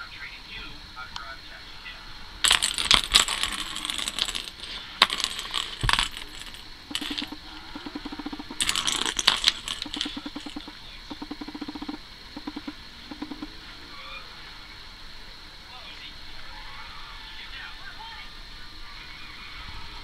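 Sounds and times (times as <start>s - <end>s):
plastic ball rattling in track: 2.4s - 13.5s
low fast pulsing sound: 6.8s - 9.1s, 9.8s - 13.6s.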